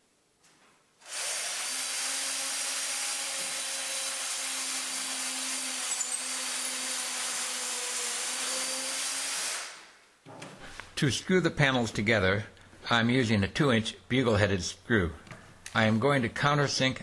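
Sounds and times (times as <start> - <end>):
electric drill boring into wood: 1.0 - 9.8.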